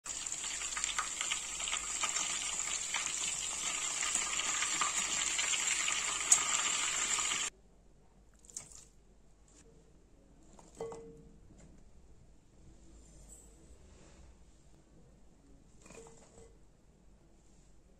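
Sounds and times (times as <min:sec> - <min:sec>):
oil sizzling and crackling: 0:00.0 - 0:07.5.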